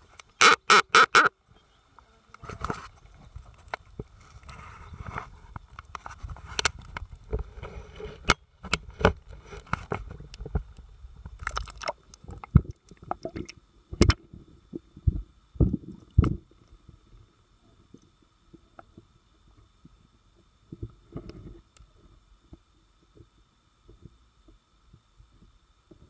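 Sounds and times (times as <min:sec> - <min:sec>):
water sloshing and splashing: 0:11.3 - 0:14.1.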